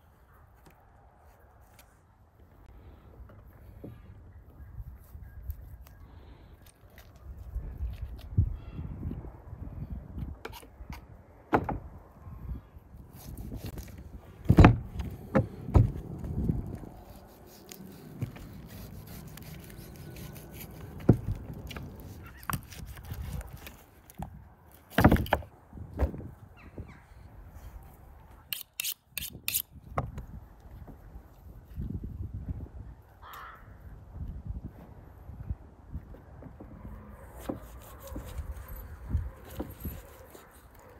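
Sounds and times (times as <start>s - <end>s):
knife cutting and scraping: 13.1s - 14.1s, 15.4s - 24.2s, 28.4s - 29.8s, 37.3s - 40.9s.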